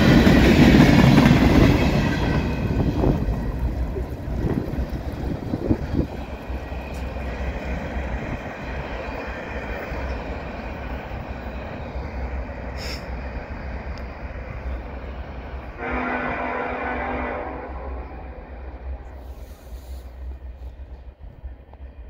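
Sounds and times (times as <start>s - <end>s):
freight train rolling on rails: 0.0s - 22.0s
sharp train clanks: 0.0s - 22.0s.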